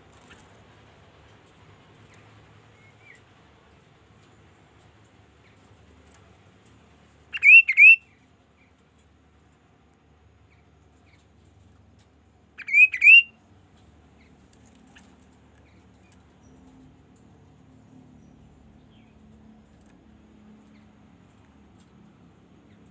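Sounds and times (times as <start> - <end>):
bird whistled calls: 7.3 - 8.0, 12.6 - 13.3.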